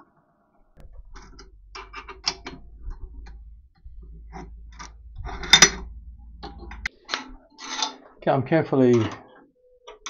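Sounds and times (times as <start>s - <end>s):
low steady hum: 0.8s - 7.4s.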